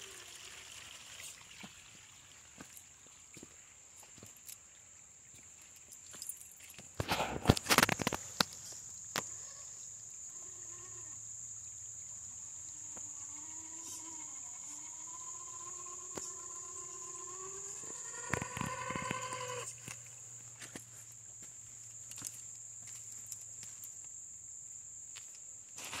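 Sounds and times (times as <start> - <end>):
high insect drone: 0.0 - 1.5, 3.4 - 26.0
electric motor whining: 13.0 - 19.8.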